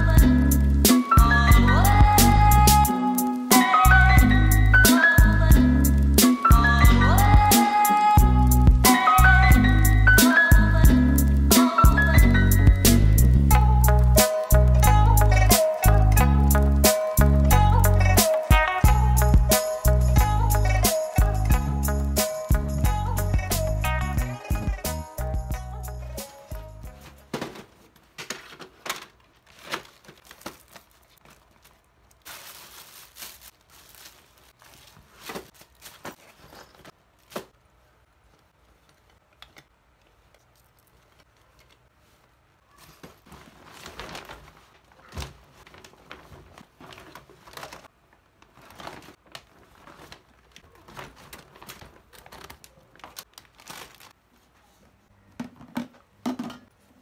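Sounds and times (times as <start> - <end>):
packaging crinkling and rustling: 26.4 - 54.9.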